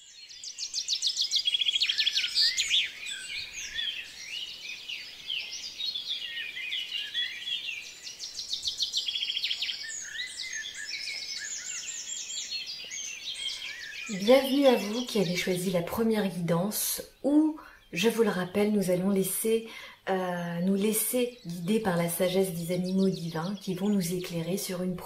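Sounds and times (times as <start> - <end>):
songbirds chirping and trilling: 0.0 - 25.0.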